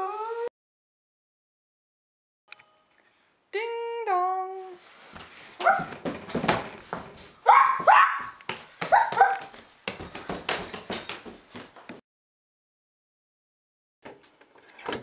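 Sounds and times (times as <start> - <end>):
knocks on hardwood floor: 5.8 - 7.1
person imitating dog barks: 7.5 - 9.5.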